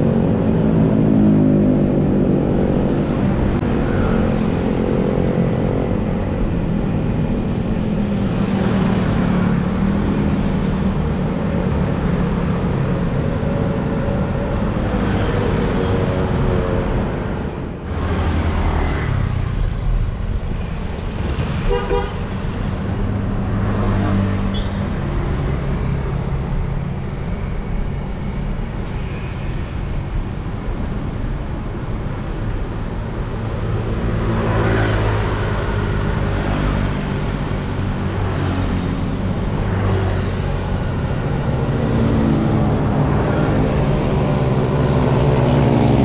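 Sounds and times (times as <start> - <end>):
car engines passing: 0.0 - 46.0.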